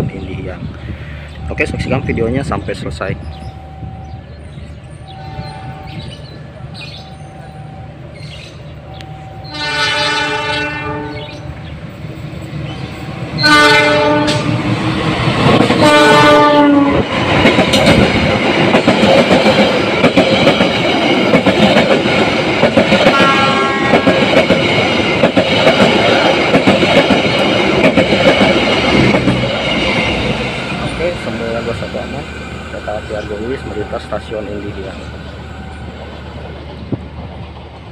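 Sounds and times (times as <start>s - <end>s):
locomotive horn blasts: 5.1s - 6.0s, 9.2s - 11.4s, 13.4s - 14.6s, 15.8s - 17.1s, 23.1s - 24.2s
train wheels clattering over rail joints: 14.3s - 31.8s.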